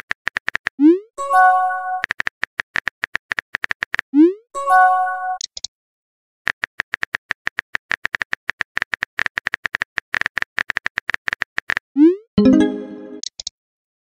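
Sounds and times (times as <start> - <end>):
pitched message tone: 12.4 - 13.2.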